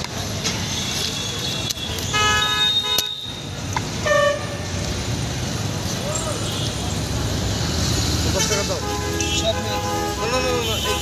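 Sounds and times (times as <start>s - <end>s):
road traffic noise: 0.0s - 11.0s
vehicle horns honking: 0.8s - 4.7s, 8.3s - 11.0s.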